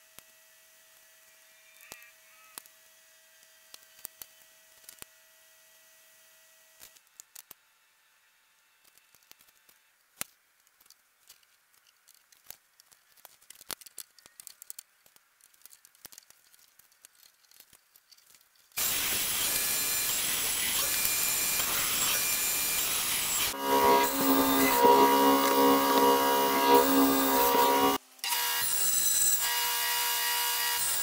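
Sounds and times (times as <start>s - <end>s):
power tool running: 18.8s - 28.8s.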